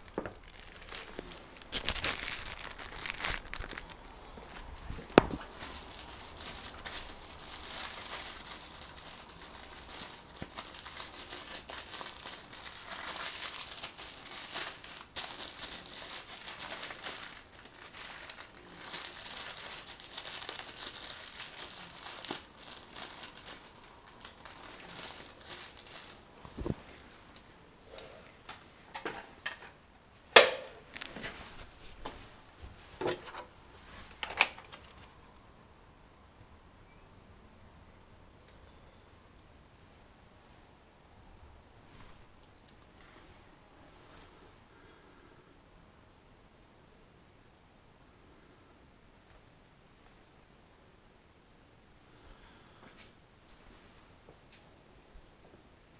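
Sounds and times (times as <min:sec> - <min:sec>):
rustling and crinkling: 0:00.0 - 0:29.8, 0:30.6 - 0:35.4, 0:41.8 - 0:44.5, 0:52.8 - 0:55.7.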